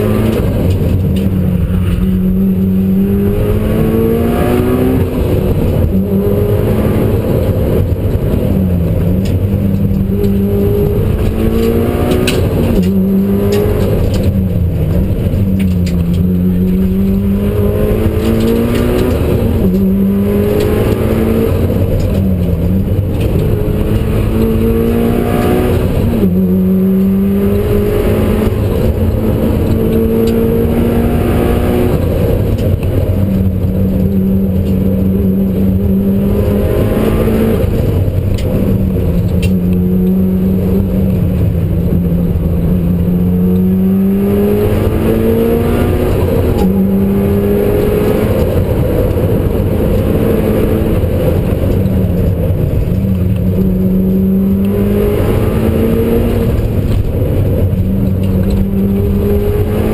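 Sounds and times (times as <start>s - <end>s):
car engine revving: 0.0s - 59.9s.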